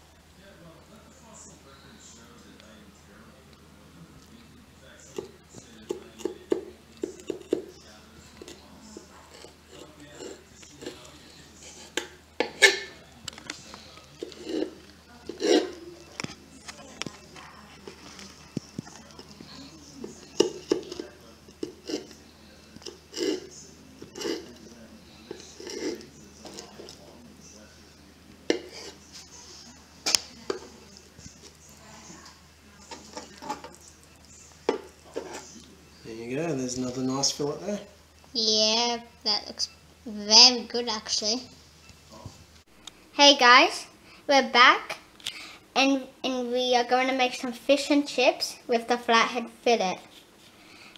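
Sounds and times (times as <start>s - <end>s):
knife scraping: 8.4s - 13.0s, 13.6s - 16.3s, 20.0s - 22.2s, 22.8s - 27.0s, 28.5s - 29.4s, 35.1s - 35.6s.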